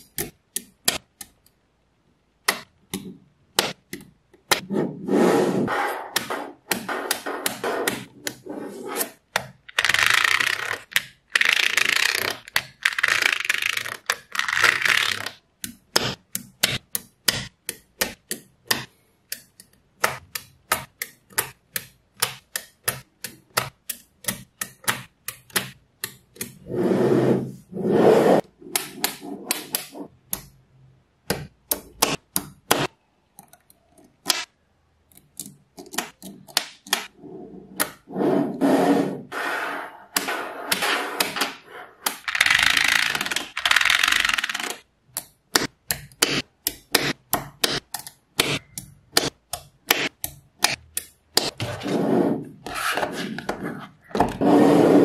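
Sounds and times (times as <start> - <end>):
magnetic balls clicking together: 40.7 - 51.5.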